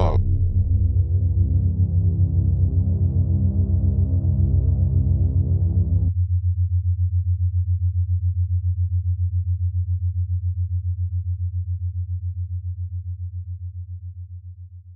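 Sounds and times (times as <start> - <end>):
pulsing bass drone: 0.0 - 6.2.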